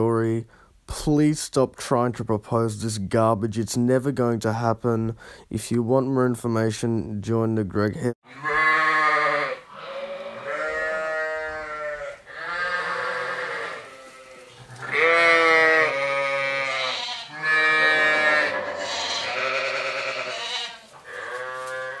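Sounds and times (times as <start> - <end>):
livestock bleating: 8.2 - 22.0.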